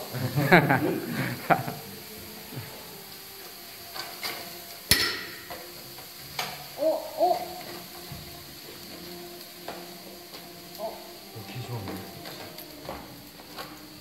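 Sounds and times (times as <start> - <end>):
wooden spoon stirring: 7.3 - 14.0.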